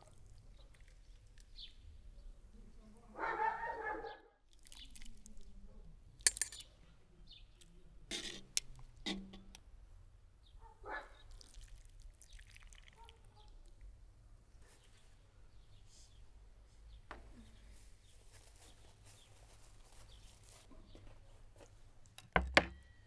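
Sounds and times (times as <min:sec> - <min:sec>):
metal tongs clinking: 0:06.3 - 0:06.7.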